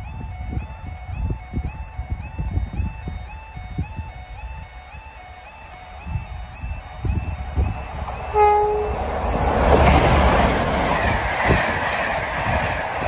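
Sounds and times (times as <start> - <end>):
diesel locomotives passing: 0.0 - 13.0
wheels rumbling: 1.6 - 13.0
locomotive horn blast: 8.2 - 9.2.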